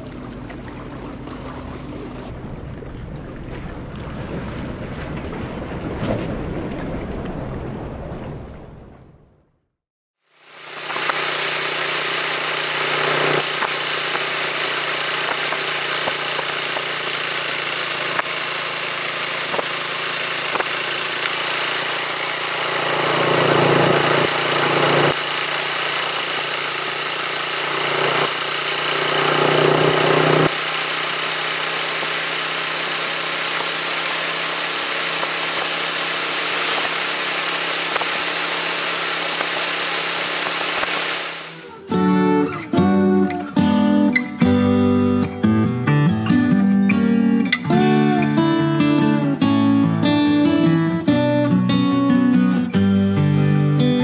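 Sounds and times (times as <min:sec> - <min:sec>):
motorcycle engine running: 0:10.4 - 0:41.7.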